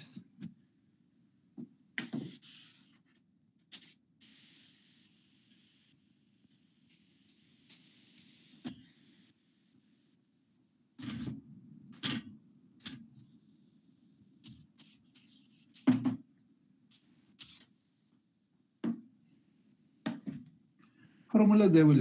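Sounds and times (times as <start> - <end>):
eraser rubbing on whiteboard: 2.0 - 4.0, 14.4 - 16.0, 16.9 - 17.8.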